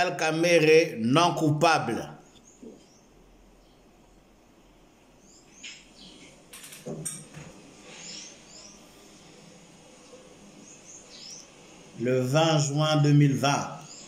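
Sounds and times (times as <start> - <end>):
knocks and rustles: 5.5 - 7.6.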